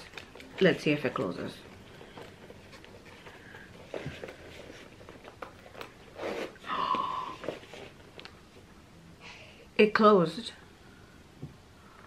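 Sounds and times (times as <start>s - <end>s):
bag handling clicks and scrapes: 0.0s - 6.8s
zipper rasp: 5.7s - 6.8s.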